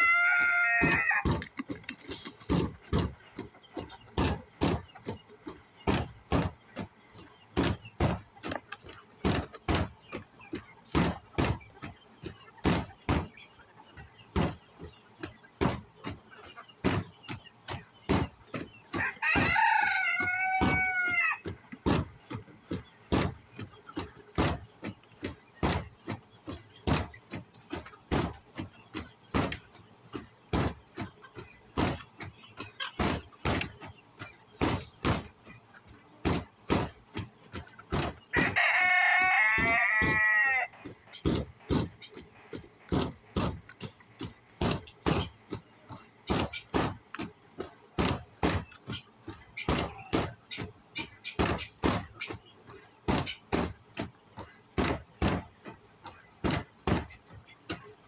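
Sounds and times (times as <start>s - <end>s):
rooster crowing: 0.0s - 1.3s, 19.0s - 21.4s, 38.4s - 40.7s.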